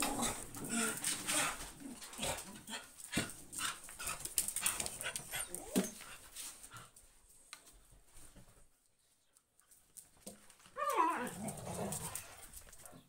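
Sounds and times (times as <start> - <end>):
dog claws clicking on tiles: 0.0 - 6.1.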